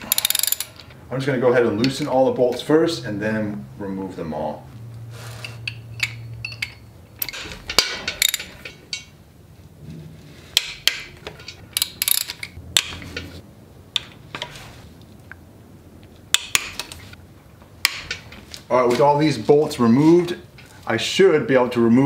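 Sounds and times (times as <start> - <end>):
ratchet wrench clicking: 0.0 - 0.8, 11.8 - 12.9
metal tool clinks and knocks: 5.4 - 9.2.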